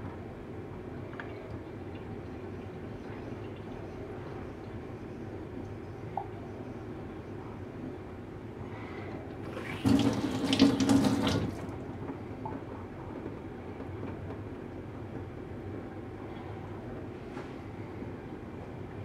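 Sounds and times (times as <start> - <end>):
tap water running into sink: 9.5 - 11.8.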